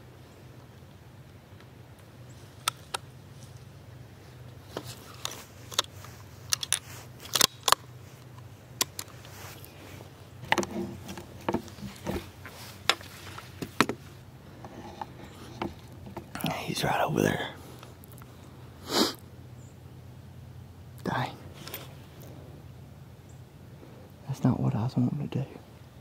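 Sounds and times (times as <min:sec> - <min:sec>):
low steady hum: 0:00.0 - 0:26.0
light rustling: 0:01.6 - 0:16.6.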